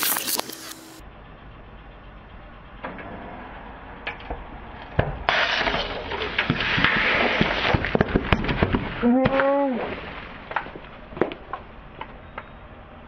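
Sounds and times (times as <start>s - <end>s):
low engine rumble: 0.0s - 13.0s
cans cracking under tyre: 4.8s - 12.5s
cans bursting with spraying hiss: 5.3s - 10.8s.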